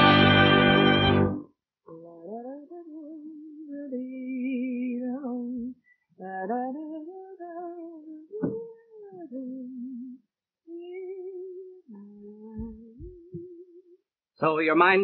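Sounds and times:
orchestral music: 0:00.0 - 0:01.4.

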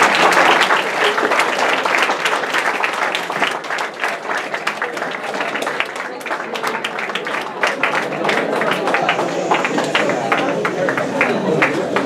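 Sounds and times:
audience clapping: 0:00.0 - 0:12.0.

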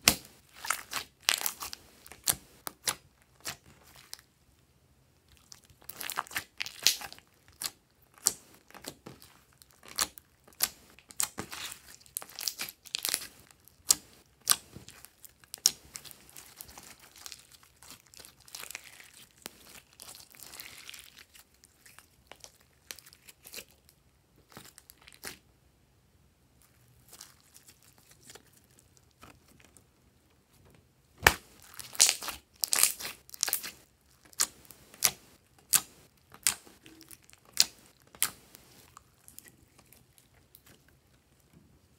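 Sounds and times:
slime crackling and popping: 0:00.0 - 0:04.2, 0:05.4 - 0:23.8, 0:31.2 - 0:40.8.

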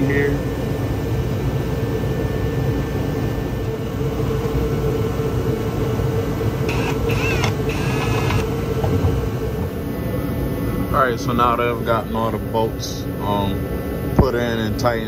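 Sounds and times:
low background hum: 0:00.0 - 0:15.0
cordless driver whirring: 0:06.7 - 0:08.6.

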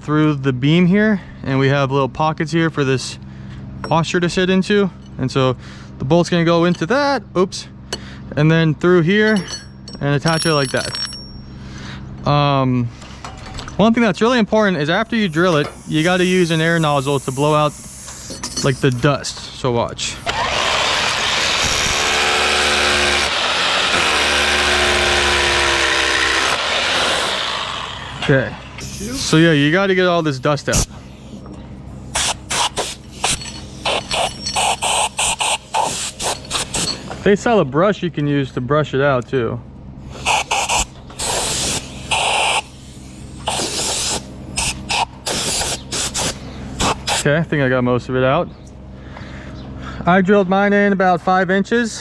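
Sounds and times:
rotary hammer drilling concrete: 0:15.2 - 0:18.3, 0:20.2 - 0:29.3, 0:32.2 - 0:37.0, 0:40.2 - 0:42.7, 0:43.4 - 0:47.3
compressed air blasts hissing: 0:15.3 - 0:18.4, 0:28.8 - 0:29.4, 0:32.1 - 0:37.0, 0:40.1 - 0:47.3.

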